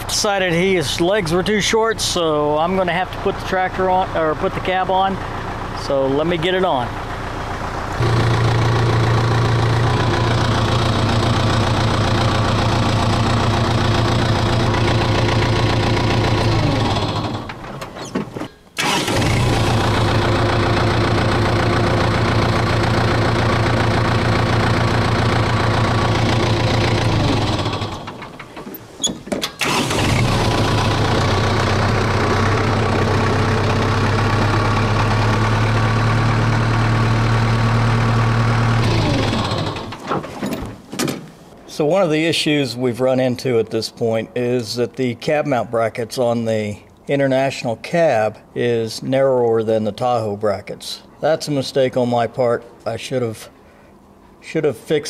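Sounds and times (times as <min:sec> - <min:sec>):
tractor diesel engine running: 0:00.0 - 0:40.4.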